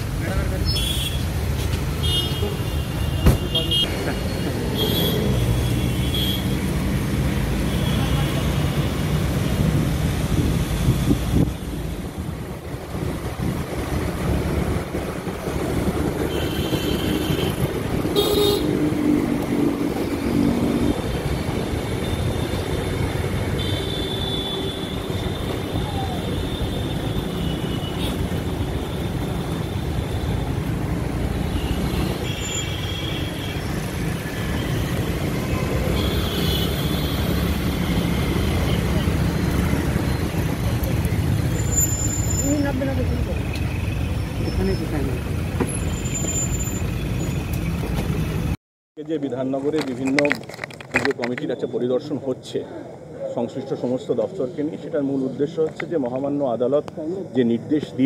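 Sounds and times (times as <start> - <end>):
traffic rumble of engines and tyres: 0.0 - 58.0
car horns tooting: 2.0 - 3.9, 16.3 - 18.8, 35.4 - 39.3.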